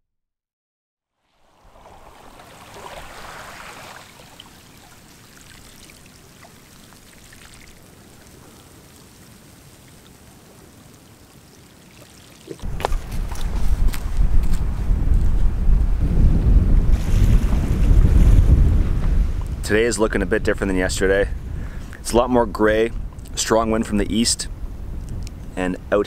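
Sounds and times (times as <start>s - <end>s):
seawater trickling and gurgling: 1.2s - 14.0s
water drips and clicks: 4.3s - 14.6s
wind buffeting microphone: 12.6s - 26.0s.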